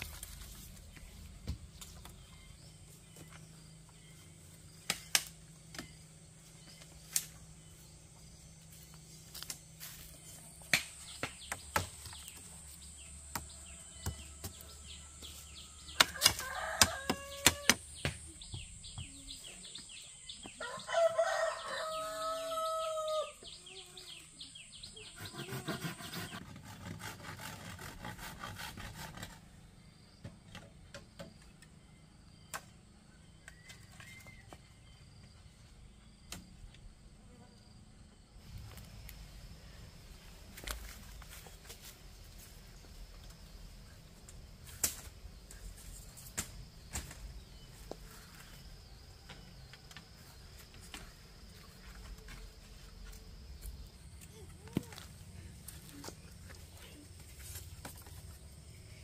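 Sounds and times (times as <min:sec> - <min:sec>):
rooster crowing: 0:15.9 - 0:17.8, 0:20.6 - 0:23.4.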